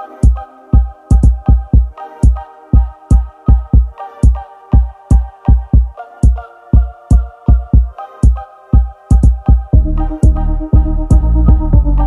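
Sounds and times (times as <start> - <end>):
held synth chords: 0.0 - 12.0
booming kick drum beat: 0.2 - 2.4, 5.1 - 12.0.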